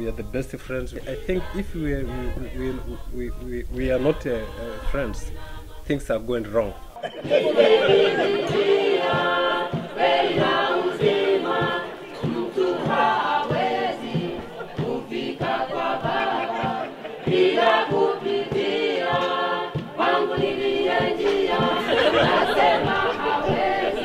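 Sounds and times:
group of voices singing: 0.0s - 24.0s
steady beat: 6.2s - 24.0s.

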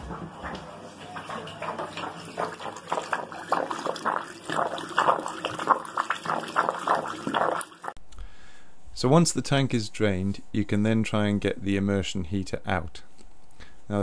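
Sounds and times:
water splashing into a basin: 1.0s - 8.0s.

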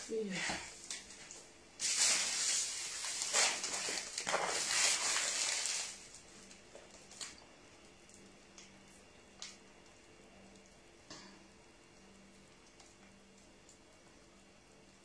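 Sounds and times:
plastic bag rustling: 0.1s - 7.3s.

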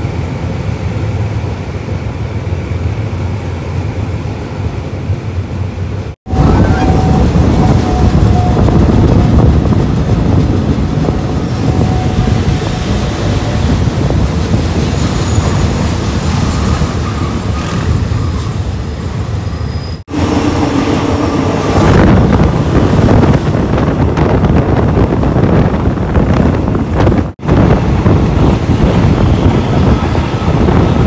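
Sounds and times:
train wheels rumbling on track: 0.0s - 31.0s
wind on microphone: 6.3s - 18.2s, 20.4s - 31.0s.

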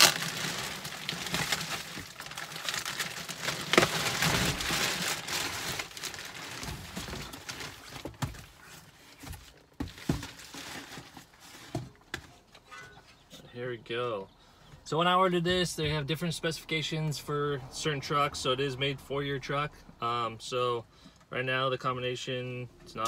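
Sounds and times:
bubble wrap and cardboard rustling: 0.0s - 12.2s.

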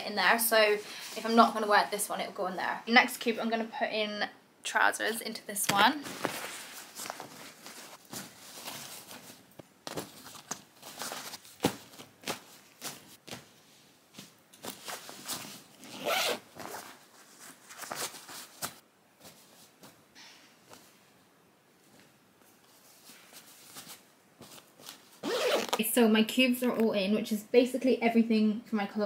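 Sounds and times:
fabric rustling: 5.7s - 21.1s, 21.7s - 25.9s
zipper rasping: 15.7s - 17.0s, 25.2s - 25.8s.

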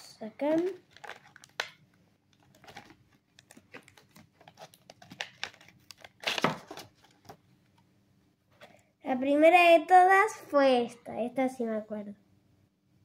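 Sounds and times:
paper wrapper tearing and crinkling: 0.4s - 7.4s.

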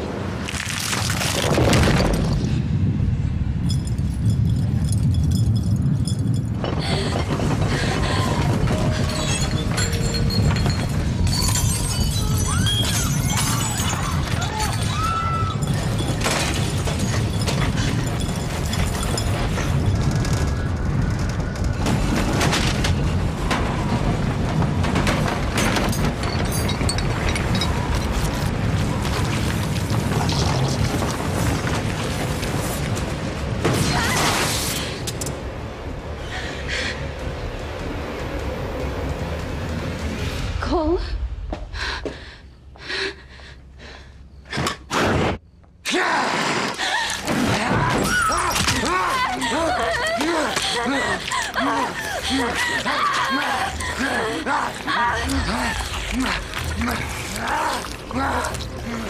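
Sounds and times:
woman's strained cries: 46.8s - 56.4s.

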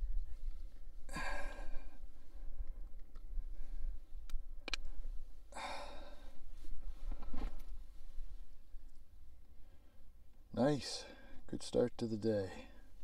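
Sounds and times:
man sighing: 1.1s - 2.0s, 5.5s - 6.3s
small sharp clicks: 4.2s - 4.9s.

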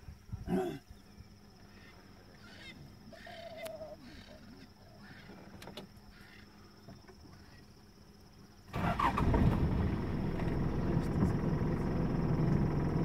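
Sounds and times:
faint chirping animal calls: 0.5s - 7.9s
low hum: 8.2s - 13.0s.

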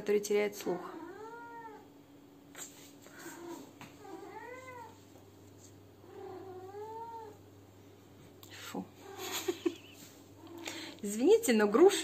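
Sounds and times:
cat meowing: 0.8s - 1.9s, 3.1s - 5.0s.

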